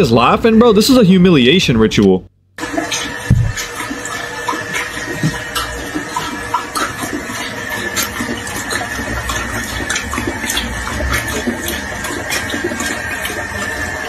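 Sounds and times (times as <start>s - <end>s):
running water: 2.6s - 14.0s
small splashes: 2.6s - 14.0s.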